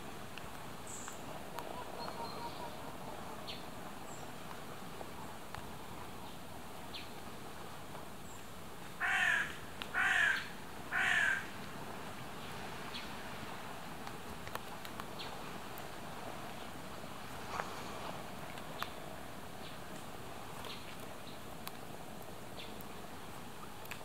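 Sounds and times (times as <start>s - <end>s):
faint outdoor hiss: 0.0s - 24.0s.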